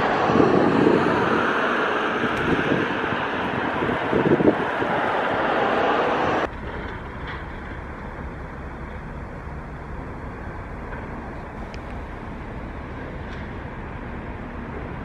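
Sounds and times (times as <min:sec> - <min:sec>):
loud rushing noise: 0:00.0 - 0:07.3
low outdoor rumble: 0:00.0 - 0:15.0.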